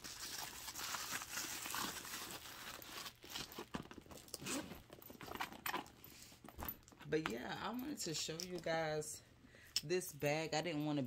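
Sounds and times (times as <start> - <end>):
paper stuffing crinkling: 0.0 - 7.0
handbag rustling and knocking: 3.4 - 7.8.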